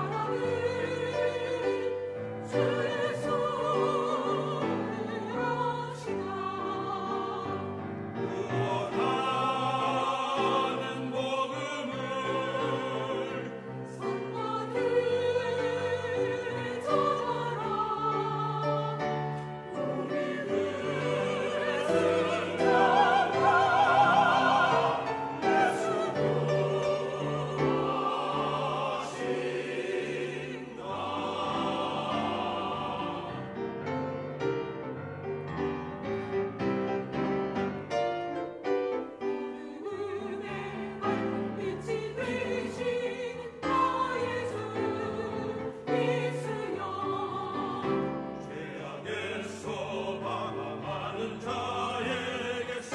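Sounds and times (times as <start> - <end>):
choir singing a hymn: 0.0 - 52.9
piano accompaniment: 0.0 - 52.9.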